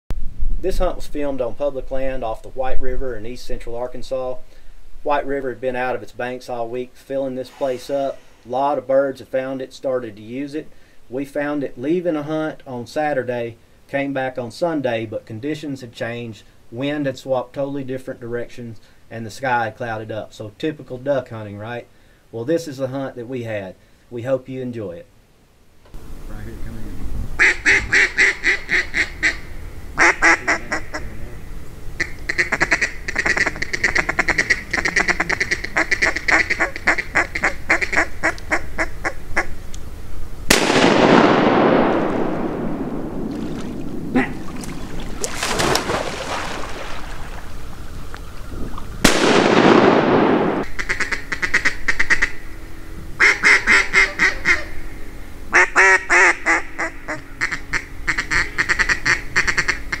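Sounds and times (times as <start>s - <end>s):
mallard ducks quacking: 27.4s - 31.2s, 32.0s - 39.5s, 50.8s - 52.4s, 53.2s - 54.8s, 55.5s - 60.0s
shotgun blasts echoing: 40.5s - 44.2s, 49.0s - 50.7s
sharp cracks: 40.5s - 47.5s, 49.0s - 51.4s.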